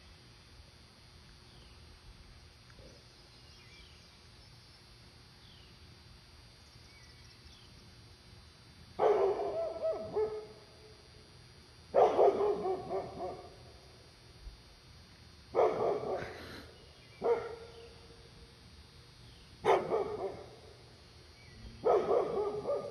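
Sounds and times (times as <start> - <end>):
dog barking: 9.0 - 10.6, 11.9 - 13.6, 15.6 - 16.4, 17.2 - 17.8, 19.6 - 20.6, 21.8 - 22.9.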